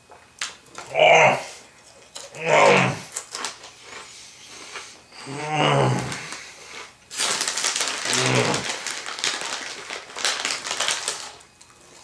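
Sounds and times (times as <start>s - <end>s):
crunchy snacks being chewed: 1.8s - 12.0s
person humming: 2.3s - 3.1s, 5.2s - 6.2s, 8.1s - 8.7s
snack bag crinkling: 3.1s - 4.9s, 6.0s - 12.0s.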